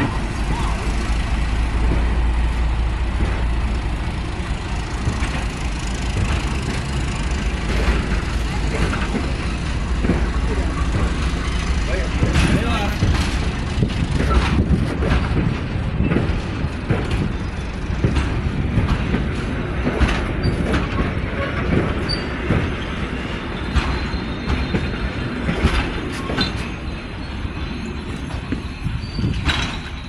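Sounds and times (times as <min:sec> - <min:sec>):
train carriages rumbling: 0:00.0 - 0:30.0
wheels clicking over rail joints: 0:00.0 - 0:30.0
high wheel squeals: 0:21.4 - 0:25.4, 0:26.0 - 0:30.0.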